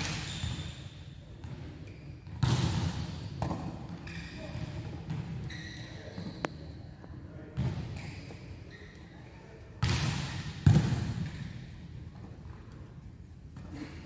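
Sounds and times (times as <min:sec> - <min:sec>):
volleyballs struck and bouncing: 0:00.0 - 0:00.6, 0:01.4 - 0:05.4, 0:09.8 - 0:12.6.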